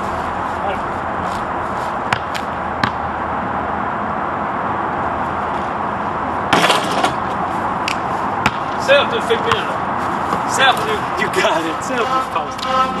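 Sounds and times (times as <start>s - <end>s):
steady rushing background noise: 0.0s - 13.0s
basketball bouncing on asphalt: 1.9s - 3.2s, 7.8s - 10.9s.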